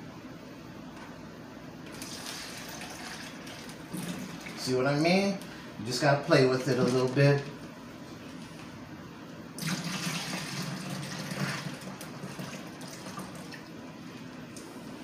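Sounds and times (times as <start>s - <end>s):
liquid pouring into plastic bag: 1.9s - 4.8s, 6.6s - 7.5s, 9.6s - 13.6s.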